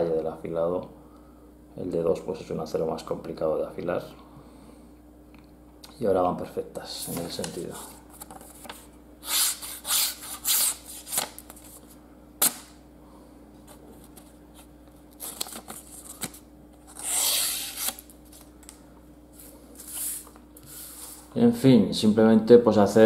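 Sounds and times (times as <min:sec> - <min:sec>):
knife slicing paper: 0:09.2 - 0:11.4, 0:16.9 - 0:18.1.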